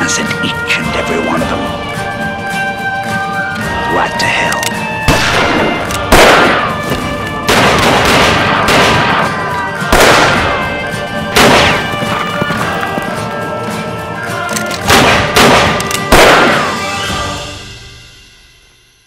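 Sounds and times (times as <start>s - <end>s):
background music with held tones: 0.0s - 19.0s
revolver gunshots echoing: 5.1s - 10.7s, 11.3s - 12.2s, 14.8s - 17.0s.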